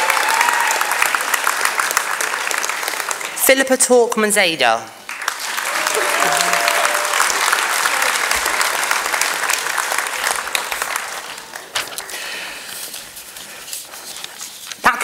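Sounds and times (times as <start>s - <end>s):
audience applauding: 0.0s - 3.4s, 5.0s - 12.6s.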